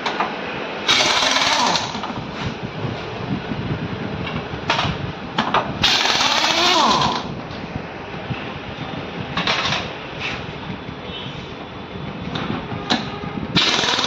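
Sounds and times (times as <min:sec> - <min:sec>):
pneumatic impact wrench hammering: 0:00.9 - 0:02.1, 0:04.7 - 0:07.3, 0:12.9 - 0:14.0.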